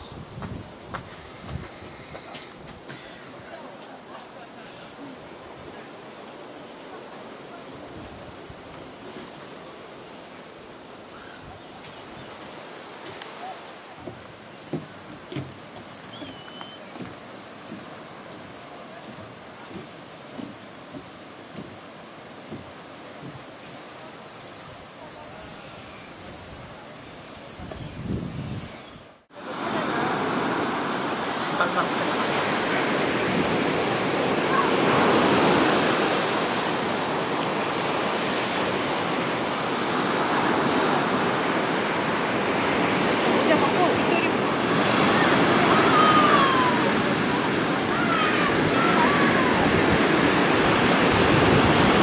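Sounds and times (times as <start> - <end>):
cicadas chorus: 0.0 - 52.0
footsteps on a boardwalk: 0.1 - 4.4, 11.8 - 24.4
surf breaking on beach: 29.3 - 52.0.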